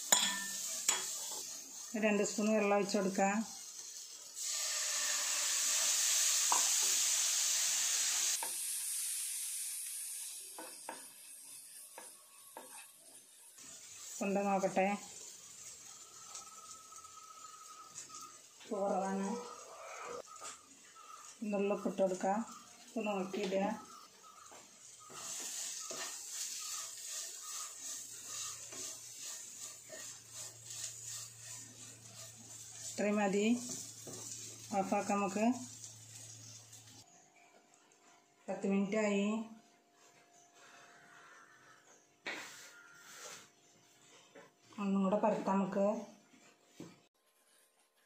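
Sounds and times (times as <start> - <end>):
onion masala sizzling in pan: 0.0 - 37.2, 42.3 - 43.9
spatula scraping pan: 10.6 - 36.6, 40.6 - 43.8
wooden spatula scraping pan: 23.0 - 35.2, 42.3 - 43.5.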